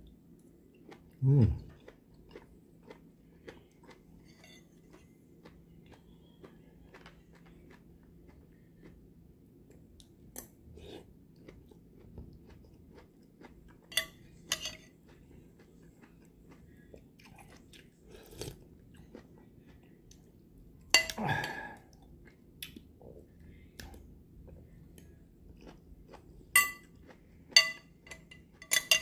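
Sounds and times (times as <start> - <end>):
chewing juicy fruit: 0.7 - 20.4, 21.0 - 27.6
metal spoon clinking on bowl: 13.9 - 14.9, 26.6 - 26.9, 27.6 - 29.0.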